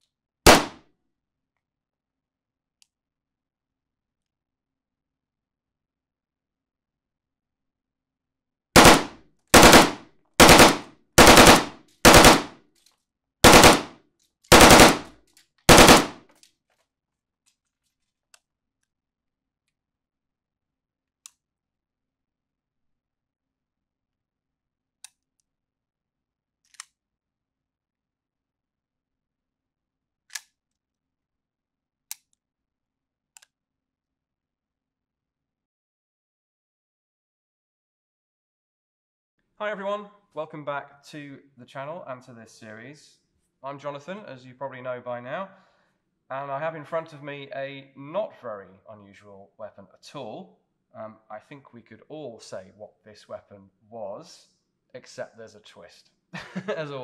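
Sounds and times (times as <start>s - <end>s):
rifle firing rapid bursts: 0.5s - 0.8s, 8.8s - 12.6s, 13.4s - 15.1s, 15.7s - 16.2s.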